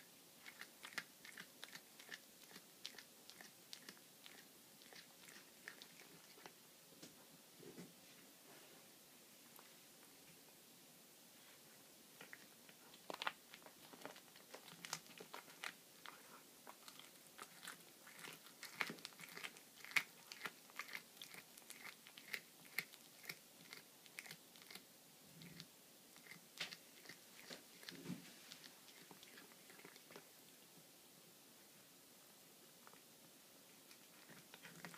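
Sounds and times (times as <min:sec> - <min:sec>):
cat crunching bones: 0:00.4 - 0:06.6, 0:12.2 - 0:24.8, 0:25.4 - 0:30.3, 0:33.9 - 0:34.9.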